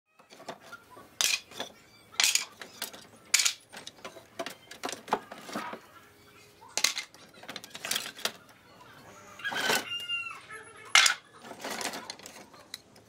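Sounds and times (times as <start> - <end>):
wooden slats clattering: 0.3 - 5.8, 10.9 - 12.4.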